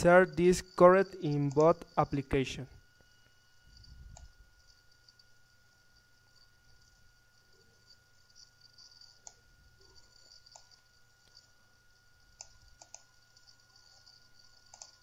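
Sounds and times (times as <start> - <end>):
faint high tone and hiss: 0.0 - 15.0
computer mouse clicks: 1.2 - 1.8, 4.1 - 4.4, 9.0 - 11.5, 12.3 - 15.0.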